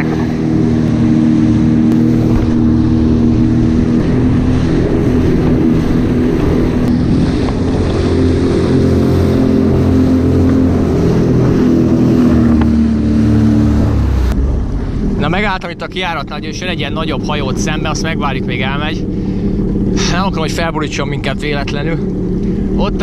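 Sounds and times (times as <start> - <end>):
wind on microphone: 0.0 - 15.5
jet ski engine running: 0.0 - 23.0.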